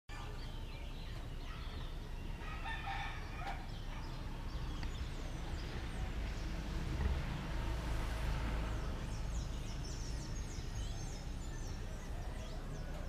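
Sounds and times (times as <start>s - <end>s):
small birds chirping: 0.1s - 13.0s
rooster crowing: 2.4s - 3.8s.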